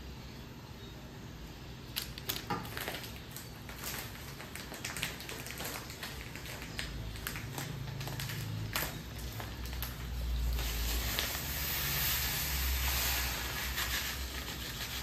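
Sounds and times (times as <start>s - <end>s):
plastic packaging crinkling: 1.9s - 15.0s.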